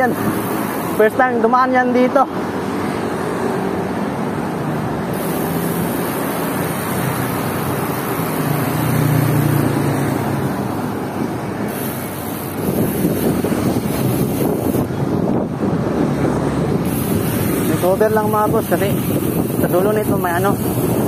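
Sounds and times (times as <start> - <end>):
road traffic noise: 0.0 - 21.0
vehicle engine drone passing: 3.5 - 11.7
wind on microphone: 7.5 - 21.0.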